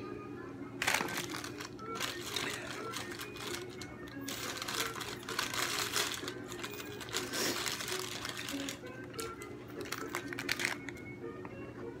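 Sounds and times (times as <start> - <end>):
faint background music: 0.0 - 12.0
plastic sleeve crinkling: 0.8 - 11.0.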